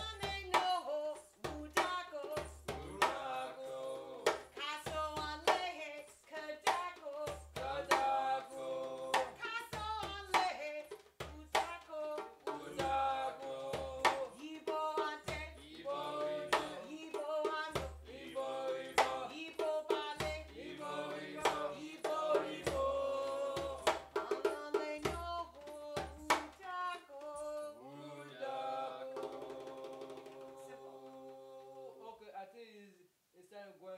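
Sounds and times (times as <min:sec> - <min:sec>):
woman singing: 0:00.0 - 0:18.1, 0:19.0 - 0:20.6, 0:21.4 - 0:27.9
djembe drums rhythm: 0:00.0 - 0:26.6, 0:29.1 - 0:31.4.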